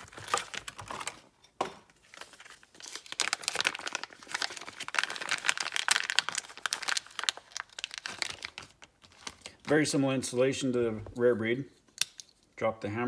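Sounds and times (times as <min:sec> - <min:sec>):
plastic bag crinkling: 0:00.0 - 0:01.2, 0:02.0 - 0:10.0.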